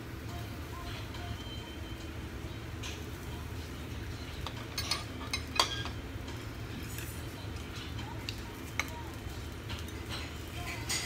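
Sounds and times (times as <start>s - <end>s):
utensils clinking on plates: 4.1s - 11.0s.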